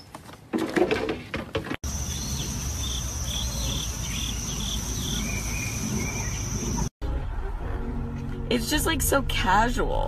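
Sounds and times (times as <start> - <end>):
crickets droning: 1.8 - 6.9.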